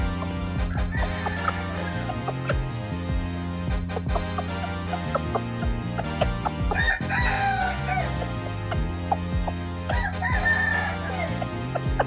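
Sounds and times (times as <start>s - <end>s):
background music with steady beat: 0.0s - 12.0s
rooster crowing: 0.7s - 2.0s, 6.7s - 8.1s, 10.0s - 11.3s.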